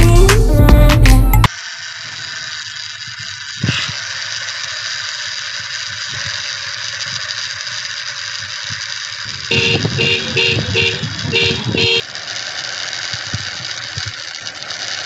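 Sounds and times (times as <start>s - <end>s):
toy truck rattling on concrete: 1.5s - 15.0s.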